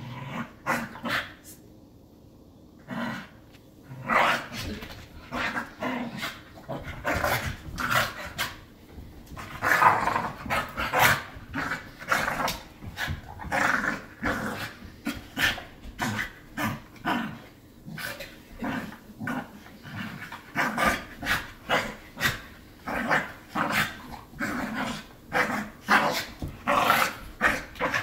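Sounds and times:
puppies growling: 9.3s - 28.0s.

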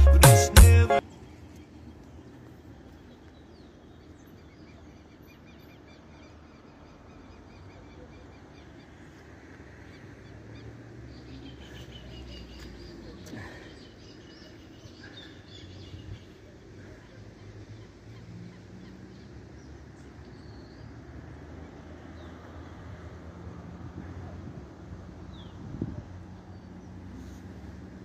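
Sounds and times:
birds chirping: 0.0s - 22.9s
low wind rumble on microphone: 23.8s - 26.5s.

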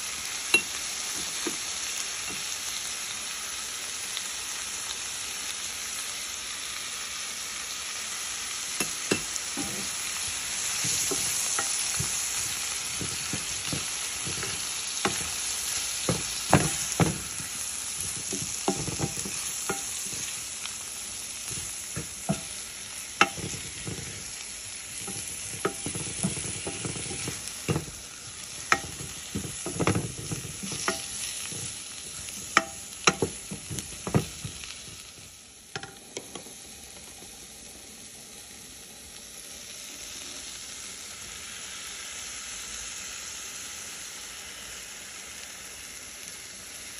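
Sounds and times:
vegetables sizzling in oil: 0.0s - 46.9s
wooden spoon knocking on pot: 8.8s - 10.0s, 10.8s - 20.4s, 21.5s - 22.6s, 23.2s - 24.3s, 24.9s - 35.1s, 35.8s - 36.4s.

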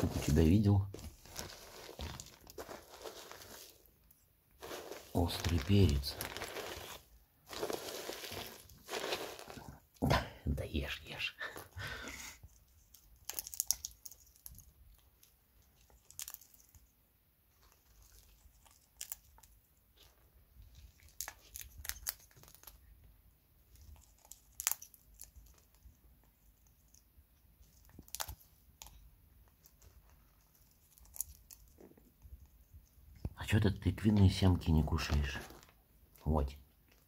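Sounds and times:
plastic bag crinkling: 0.0s - 9.8s
parrot cracking seeds: 1.1s - 3.9s, 12.9s - 15.0s, 18.0s - 19.6s, 21.0s - 22.9s, 23.8s - 25.8s, 27.8s - 29.0s.

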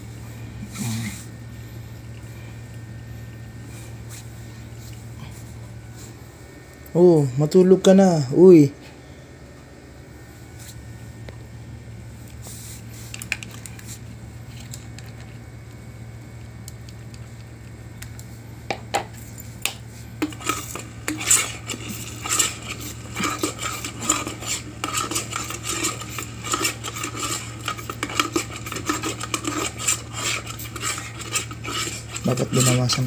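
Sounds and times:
utensil scraping in a pot: 20.2s - 33.0s.

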